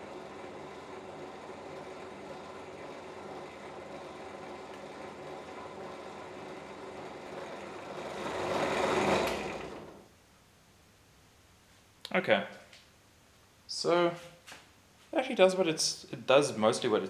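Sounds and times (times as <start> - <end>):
electric drill running: 0.0 - 10.1.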